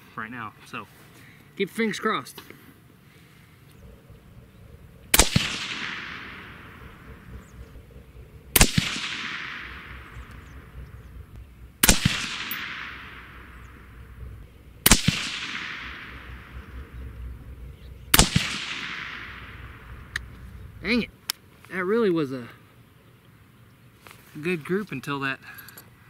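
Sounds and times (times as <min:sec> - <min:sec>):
suppressed rifle shots: 0:03.8 - 0:20.8.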